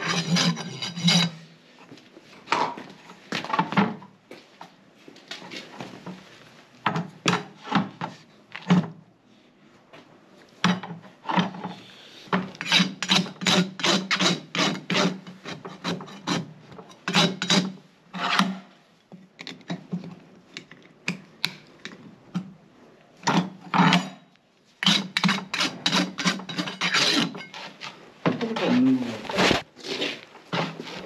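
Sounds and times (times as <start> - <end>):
hoof rasp filing hoof: 0.0 - 1.4, 12.6 - 18.5, 24.8 - 28.0.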